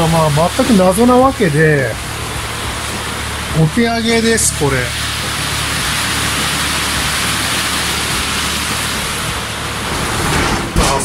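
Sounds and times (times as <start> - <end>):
heavy rain hiss: 0.0 - 11.0.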